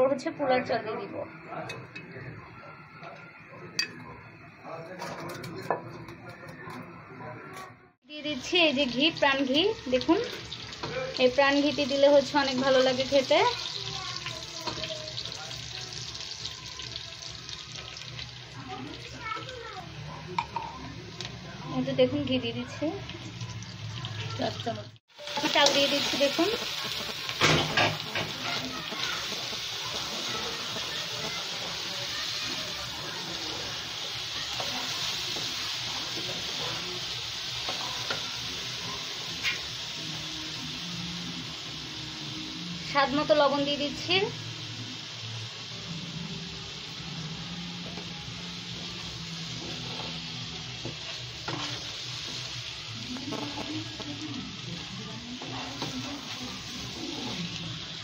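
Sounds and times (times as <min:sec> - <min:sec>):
rice sizzling in hot oil: 0:08.1 - 0:58.0
wooden spatula scraping a pan: 0:49.5 - 0:52.5, 0:55.4 - 0:57.6.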